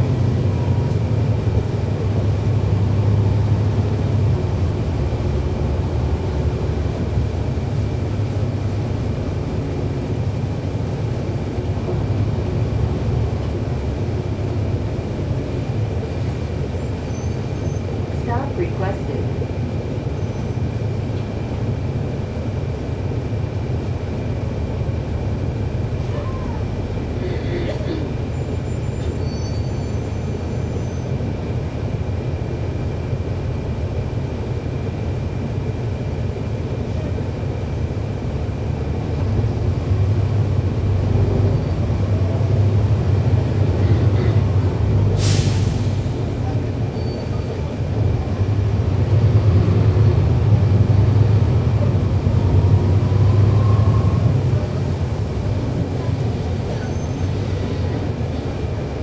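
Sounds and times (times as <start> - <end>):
bus diesel engine rumbling: 0.0 - 59.0
brief sharp hiss: 45.2 - 46.1.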